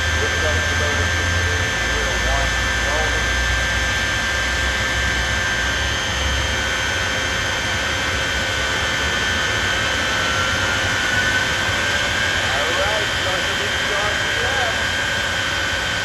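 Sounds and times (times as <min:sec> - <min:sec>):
jet engines roaring and whining: 0:00.0 - 0:16.0.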